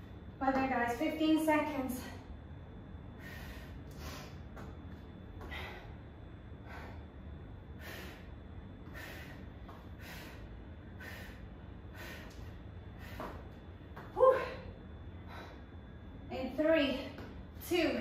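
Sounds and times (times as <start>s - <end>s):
woman breathing hard: 2.2s - 16.1s.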